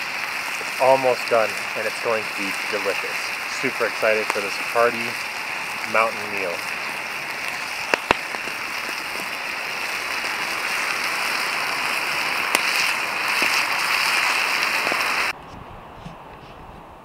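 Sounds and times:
pot boiling and sizzling: 0:00.0 - 0:15.4.

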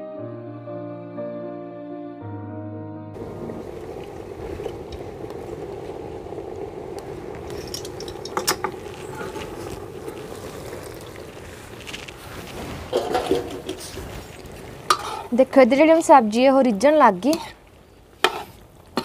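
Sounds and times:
curry simmering with sizzle: 0:03.2 - 0:19.0
metal lid and ladle clanking: 0:12.9 - 0:13.9.

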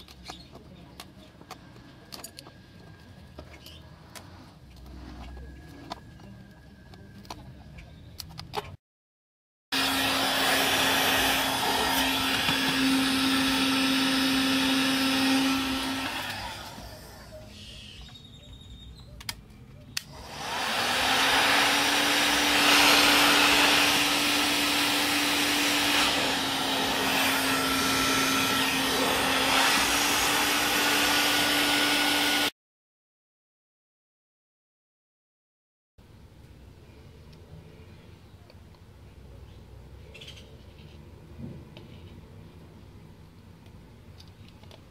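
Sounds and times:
heat gun whirring: 0:09.8 - 0:17.5, 0:20.0 - 0:32.5.

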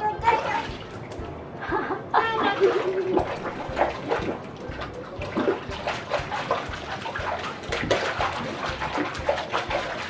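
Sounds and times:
feet splashing in pool water: 0:02.4 - 0:10.0.

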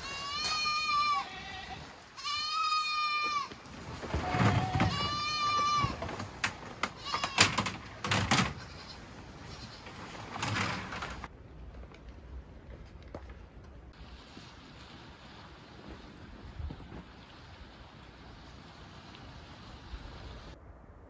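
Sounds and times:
goats bleating: 0:00.0 - 0:03.6, 0:04.2 - 0:06.2, 0:06.9 - 0:07.6, 0:08.5 - 0:10.0.

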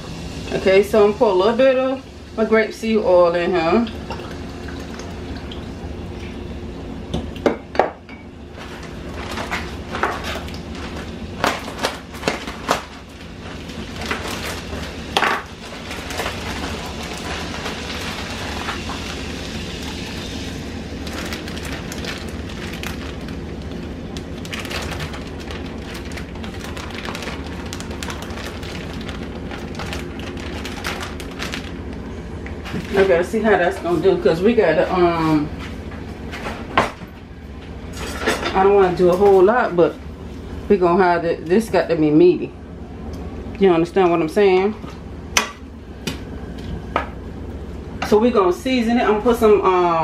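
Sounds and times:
butter and oil sizzling in pan: 0:14.4 - 0:22.5.

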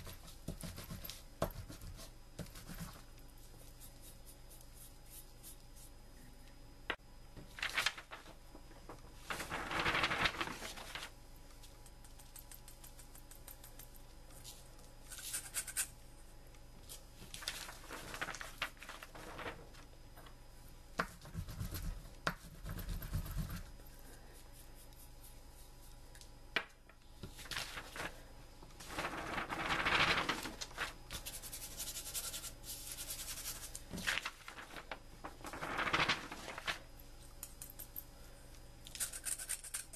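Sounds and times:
paper rustling: 0:07.4 - 0:11.2, 0:17.2 - 0:19.9, 0:27.2 - 0:31.6, 0:33.3 - 0:36.9.

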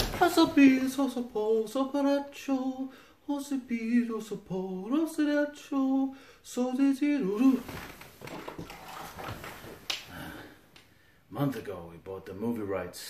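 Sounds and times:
man's wordless singing: 0:00.0 - 0:07.8.

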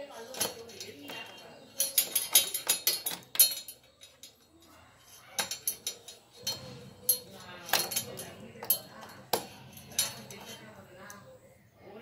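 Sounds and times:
keys clinking and jangling: 0:00.3 - 0:10.6.

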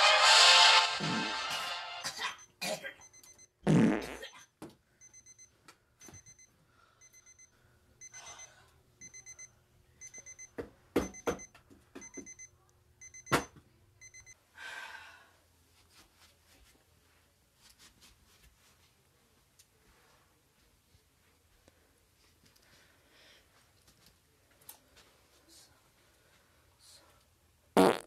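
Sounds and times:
alarm clock beeping: 0:05.0 - 0:14.4.

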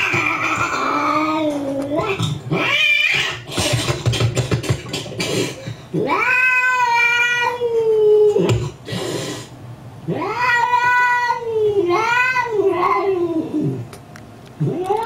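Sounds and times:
cat yowling: 0:00.0 - 0:03.5, 0:06.0 - 0:08.6, 0:10.1 - 0:13.8.

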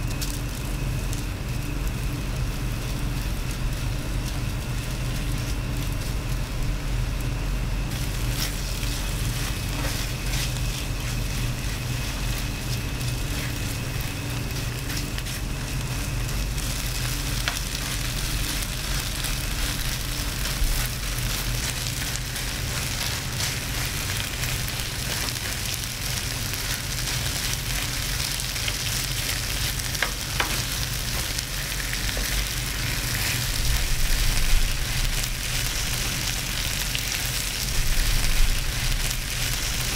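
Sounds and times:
meat sizzling on a tray: 0:00.0 - 0:39.9
steady low hum: 0:00.0 - 0:39.9
plastic spatula stirring: 0:08.0 - 0:27.5.

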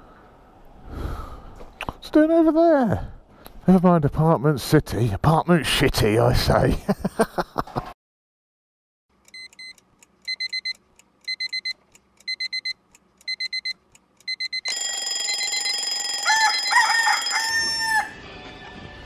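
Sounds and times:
electronic alarm beeping: 0:09.3 - 0:17.9
rising and falling alarm tone: 0:14.3 - 0:18.4.

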